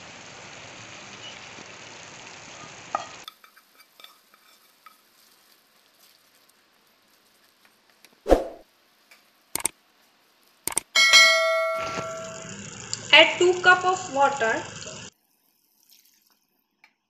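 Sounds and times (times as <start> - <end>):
masala sizzling in a pan: 0.0 - 17.0
wooden spatula stirring: 3.3 - 8.2.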